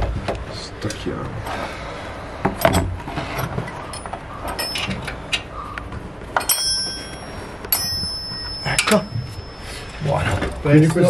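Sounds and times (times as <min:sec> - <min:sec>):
metal tools clinking and knocking: 0:02.6 - 0:05.4, 0:06.4 - 0:11.0.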